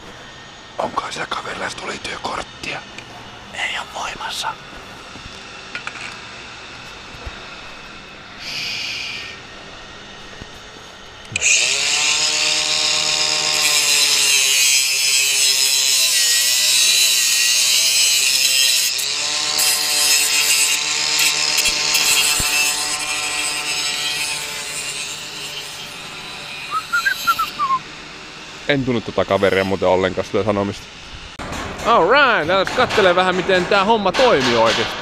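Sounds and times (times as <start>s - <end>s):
angle grinder cutting steel cable: 5.2s - 31.0s.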